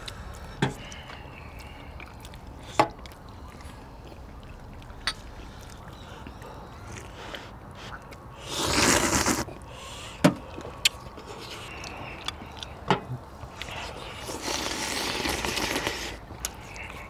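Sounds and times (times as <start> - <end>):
chewing: 0.0 - 9.7, 10.4 - 17.0
slurping: 6.8 - 9.6, 13.4 - 17.0
mouth smacks and clicks: 10.7 - 17.0.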